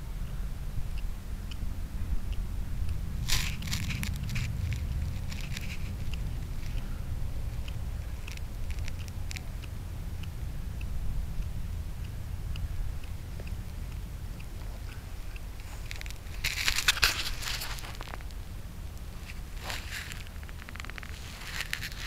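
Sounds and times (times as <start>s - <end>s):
steady low rumble: 0.0s - 22.0s
cat chewing and crunching: 3.2s - 9.8s, 13.4s - 22.0s.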